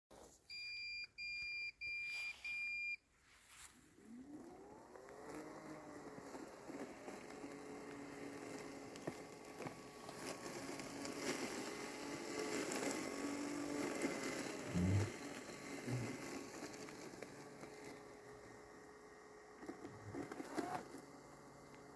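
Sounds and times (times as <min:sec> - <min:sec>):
robot mower beeps: 0:00.5 - 0:03.0
mower motor whine: 0:04.0 - 0:21.9.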